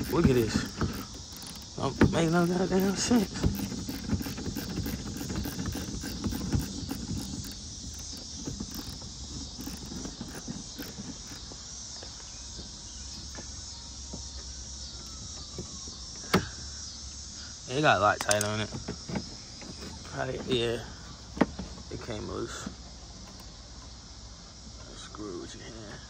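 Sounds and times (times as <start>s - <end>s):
screwdriver clicking and scraping: 0.0s - 11.6s
insects buzzing: 0.0s - 26.0s.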